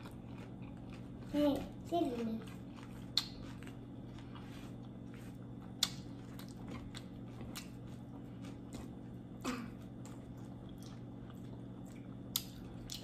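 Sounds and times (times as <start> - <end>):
chewing and crunching chips: 0.0 - 13.0
steady low hum: 0.0 - 13.0.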